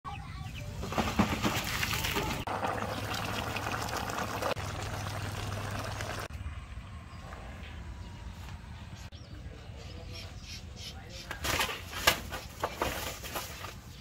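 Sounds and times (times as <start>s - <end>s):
stew bubbling: 1.3s - 6.3s
water pouring from pot: 1.3s - 6.3s.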